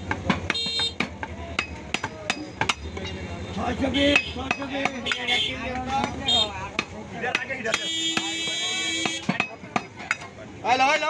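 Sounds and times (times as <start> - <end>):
knife chopping meat on wooden block: 0.0 - 3.0, 4.1 - 5.3, 6.0 - 10.2.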